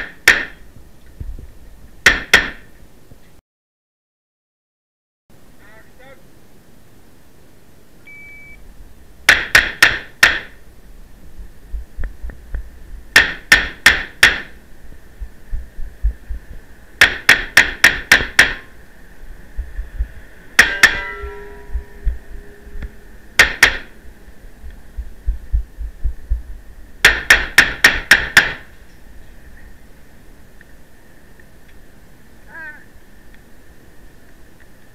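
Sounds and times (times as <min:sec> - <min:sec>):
ringing tone: 0:20.6 - 0:24.6.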